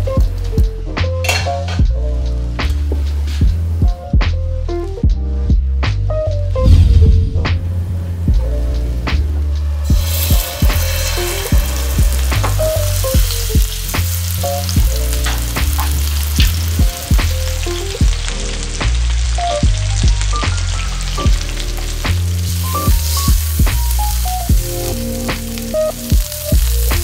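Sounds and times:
background music with beat: 0:00.0 - 0:27.0
steaks sizzling in frying pan: 0:09.9 - 0:27.0.

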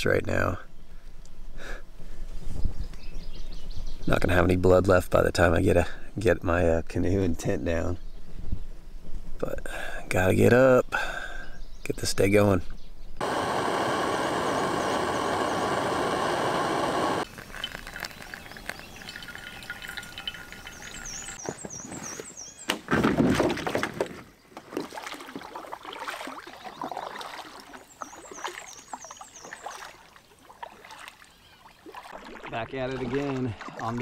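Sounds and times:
camping stove roaring: 0:13.2 - 0:21.4
water pouring into coffee filter: 0:17.2 - 0:21.4.

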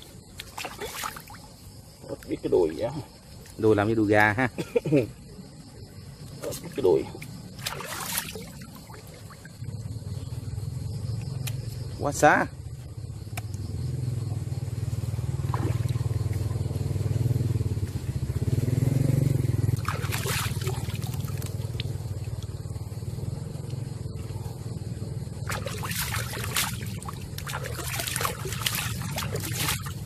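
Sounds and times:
hands splashing in water: 0:00.4 - 0:01.5, 0:07.6 - 0:09.2, 0:15.5 - 0:16.1, 0:19.8 - 0:21.9, 0:25.4 - 0:30.0
low engine hum: 0:08.8 - 0:30.0.

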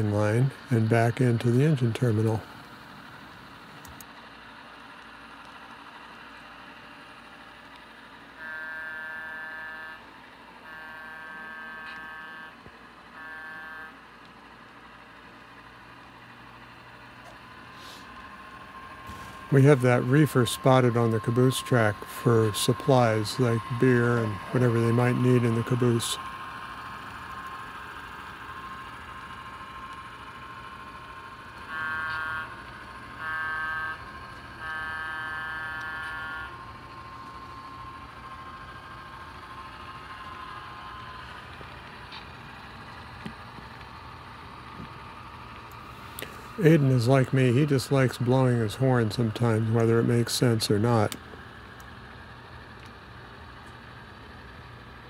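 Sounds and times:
model locomotive horn blasts: 0:08.3 - 0:14.1, 0:17.8 - 0:27.7, 0:31.5 - 0:38.0.

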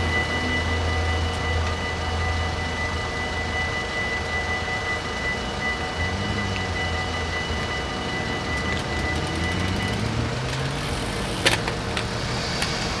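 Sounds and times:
level crossing bells ringing: 0:00.0 - 0:11.7
low engine hum: 0:04.3 - 0:13.0.

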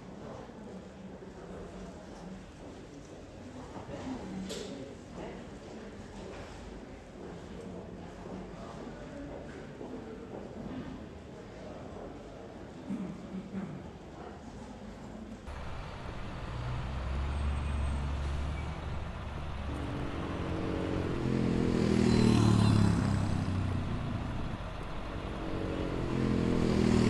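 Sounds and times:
vehicle engines running: 0:15.5 - 0:27.0
vehicle passing close: 0:15.5 - 0:27.0.

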